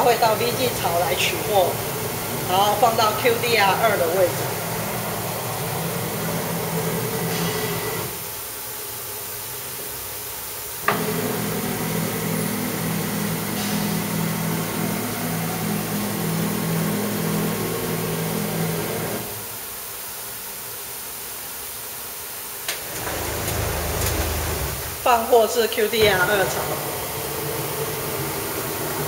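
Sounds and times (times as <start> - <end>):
pulsing motor hum: 0.0 - 8.2, 10.9 - 19.5
steady hiss: 0.0 - 29.0.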